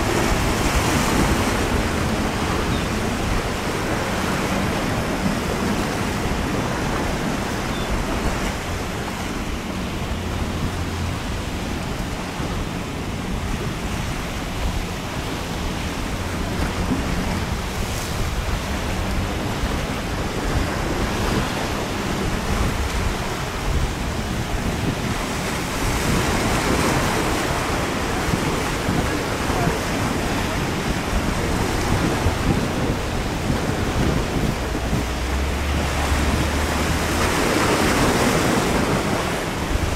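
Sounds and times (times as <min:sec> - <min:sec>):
ocean surf crashing: 0:00.0 - 0:39.9
wind buffeting microphone: 0:00.0 - 0:39.9.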